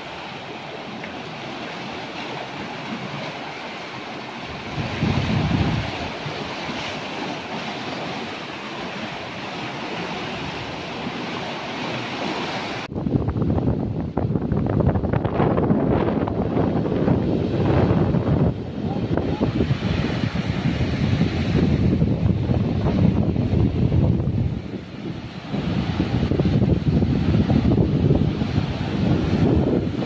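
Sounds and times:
waves washing over rocks: 0.0s - 30.0s
wind buffeting microphone: 4.4s - 8.4s, 12.2s - 30.0s.

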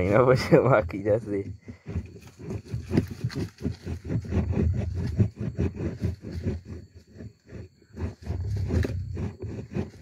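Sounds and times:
sticks thumping inside hollow log: 1.4s - 10.0s.

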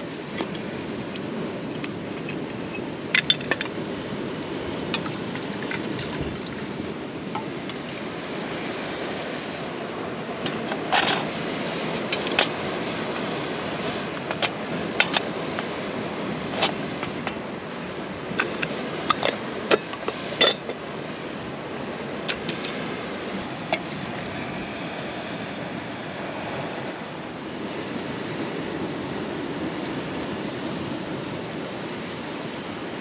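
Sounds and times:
sea waves: 0.0s - 33.0s
wind: 0.0s - 33.0s
metal pot clinks: 18.4s - 20.8s.

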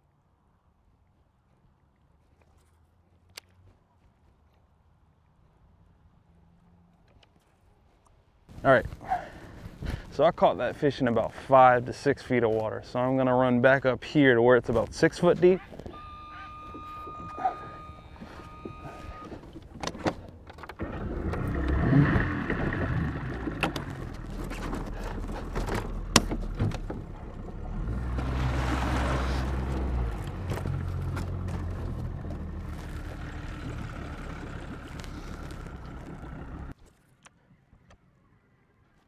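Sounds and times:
outboard motor running: 15.4s - 36.8s.

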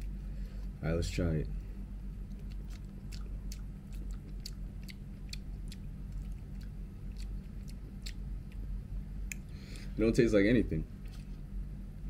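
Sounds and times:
low hum: 0.0s - 12.0s
chewing with wet mouth clicks: 2.2s - 9.8s.

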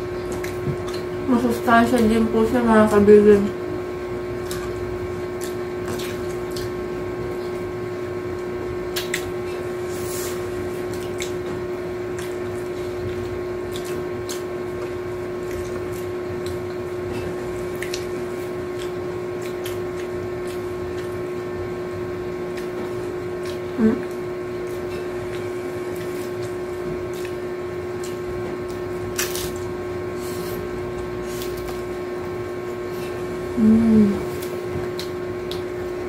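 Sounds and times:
steady low hum: 0.0s - 36.0s
tortilla chips crackling: 29.1s - 30.3s.

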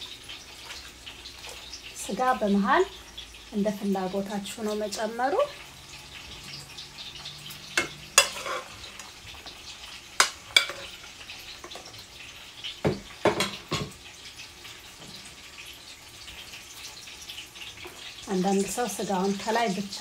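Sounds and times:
metal spoon clinking on a dish: 7.8s - 8.7s, 10.2s - 10.9s.

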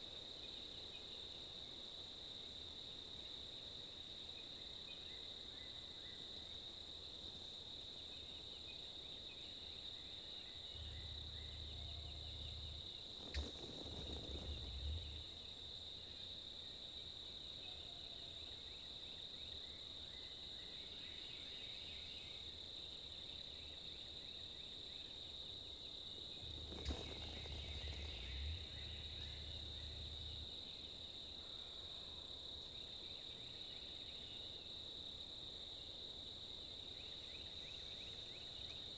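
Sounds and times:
insects buzzing: 0.0s - 38.9s
low rumble: 10.7s - 15.5s, 26.3s - 30.6s.

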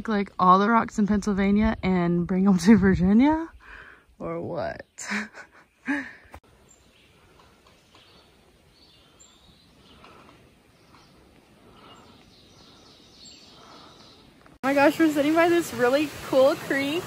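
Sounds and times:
woman's voice: 0.0s - 3.6s, 14.6s - 17.0s
birds singing faintly: 0.0s - 15.1s.

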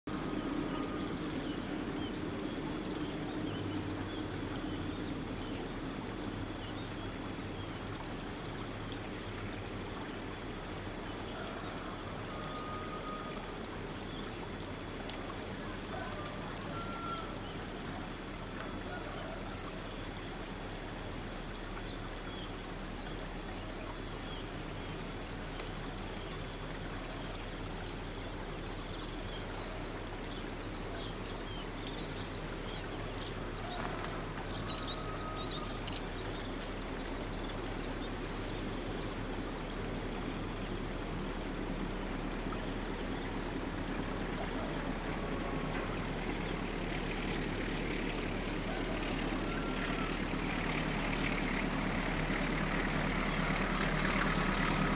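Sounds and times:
high-pitched insect drone: 0.1s - 54.9s
train rumble approaching: 32.4s - 54.9s.

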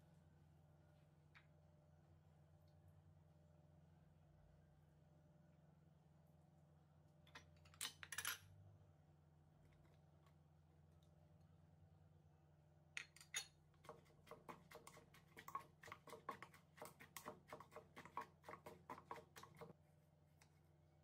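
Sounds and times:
pestle pounding in wooden mortar: 13.8s - 19.7s.

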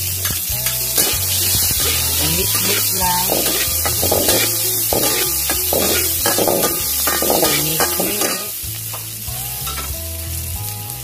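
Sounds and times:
garlic sizzling in hot oil: 0.0s - 11.0s
spatula scraping wok: 0.2s - 8.7s.

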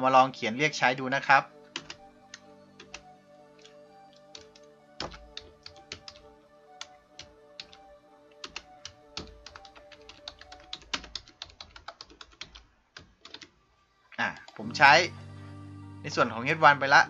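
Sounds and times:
faint background music: 0.0s - 17.0s
keyboard keys clicking: 1.7s - 13.5s.

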